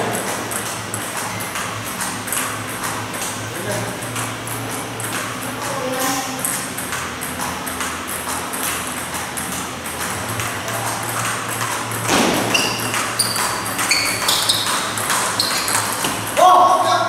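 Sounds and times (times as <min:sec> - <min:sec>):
ping pong ball hitting paddles: 0:00.0 - 0:16.6
ball bouncing on table: 0:11.2 - 0:16.3.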